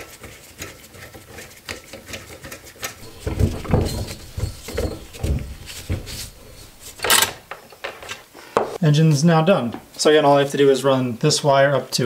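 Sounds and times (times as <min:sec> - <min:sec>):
low rubbing thumps of hose: 0:03.0 - 0:07.1.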